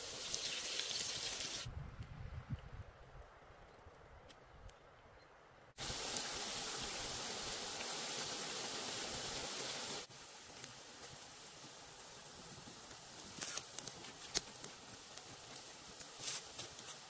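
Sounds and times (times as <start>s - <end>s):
batter sizzling in hot oil: 0.0s - 1.7s, 5.8s - 17.0s.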